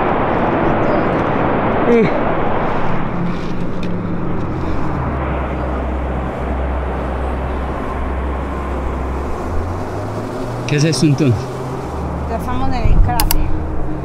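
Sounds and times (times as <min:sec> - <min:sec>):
low hum: 0:00.0 - 0:14.0
volcanic crater roaring: 0:00.0 - 0:14.0.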